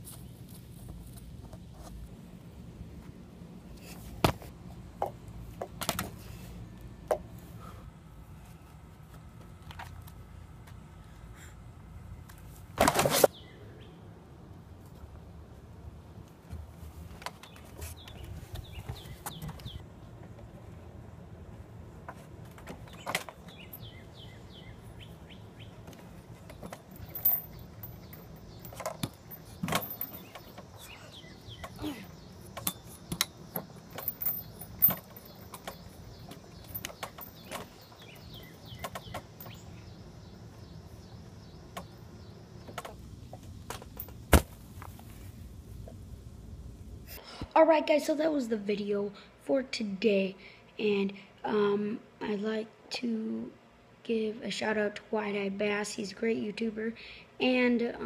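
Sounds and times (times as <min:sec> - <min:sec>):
birds chirping: 0:17.4 - 0:19.8, 0:22.8 - 0:43.4.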